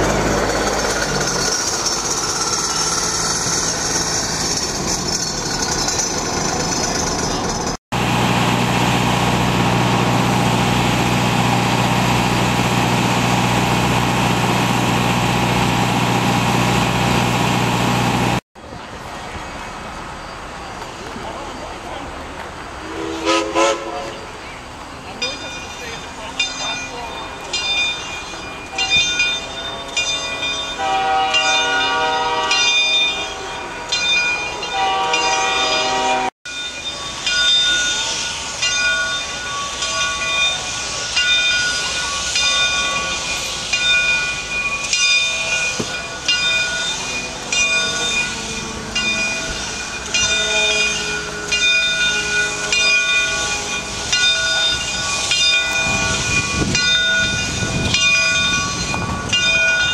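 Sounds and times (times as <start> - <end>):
steam locomotive chuffing: 0.0 - 18.4, 35.0 - 59.9.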